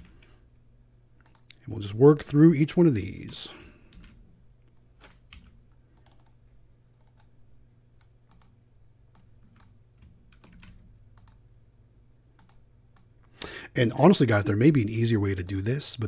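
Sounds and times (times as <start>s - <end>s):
low steady hum: 0.0s - 16.0s
keyboard keystrokes: 8.3s - 11.4s.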